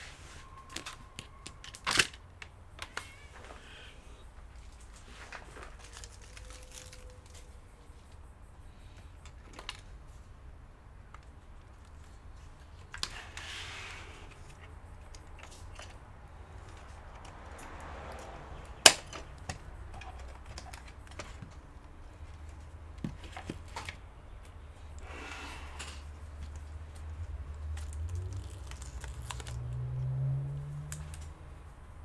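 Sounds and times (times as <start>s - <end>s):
rustling: 3.0s - 8.2s.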